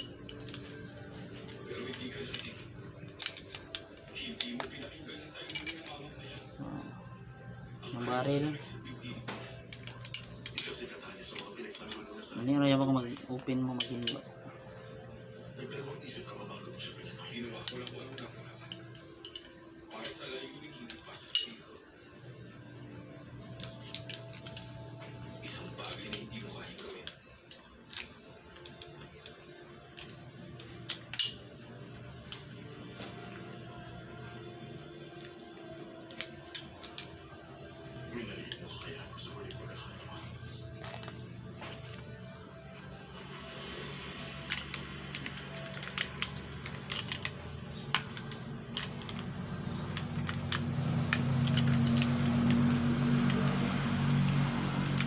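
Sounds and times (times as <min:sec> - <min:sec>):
pistol parts clicking: 0:00.0 - 0:05.9, 0:09.2 - 0:12.2, 0:23.4 - 0:31.6, 0:35.0 - 0:39.7, 0:44.4 - 0:52.1.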